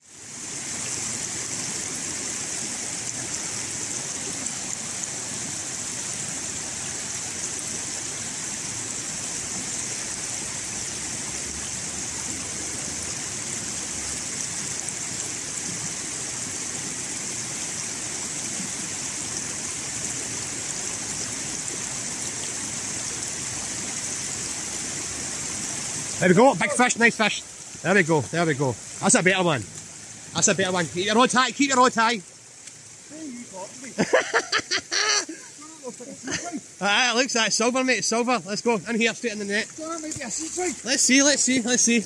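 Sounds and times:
river rushing over stones: 0:00.0 - 0:42.0.

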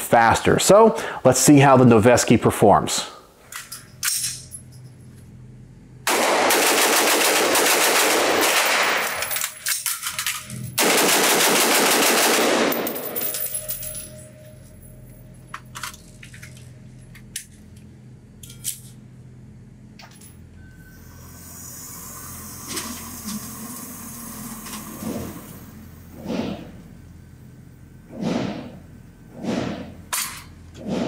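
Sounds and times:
rifle shots: 0:06.1 - 0:09.2, 0:10.8 - 0:13.1.

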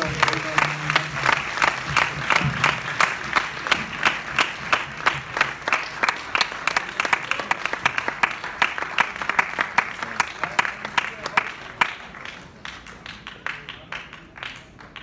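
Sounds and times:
close hand claps: 0:00.0 - 0:15.0
crowd applauding: 0:00.0 - 0:15.0.

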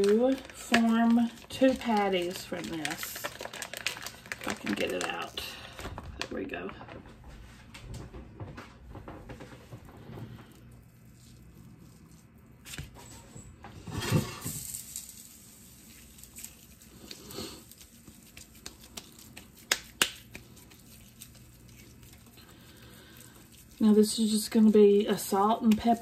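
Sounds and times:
hands squishing raw meat: 0:09.9 - 0:13.0, 0:15.8 - 0:26.0.

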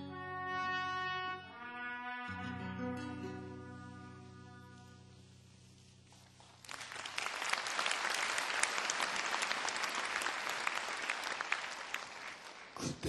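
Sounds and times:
held trumpet note: 0:00.0 - 0:05.3
audience applause: 0:06.4 - 0:13.0.

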